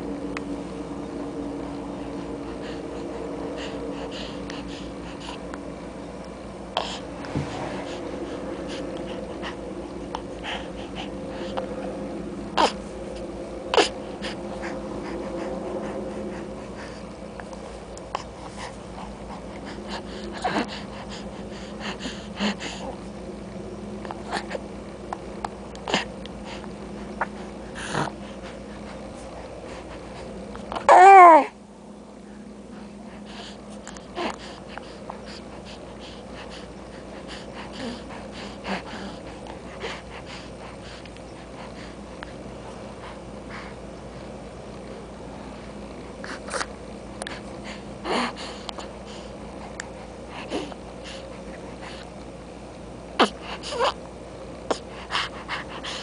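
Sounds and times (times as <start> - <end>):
steady low hum: 0.0 - 56.0
baby breathing and sniffing: 2.2 - 5.6, 6.7 - 11.8, 12.5 - 23.0, 25.8 - 30.4, 33.1 - 44.4, 46.2 - 52.1, 53.2 - 54.0, 54.7 - 56.0
baby grunting and sniffing: 53.2 - 54.0.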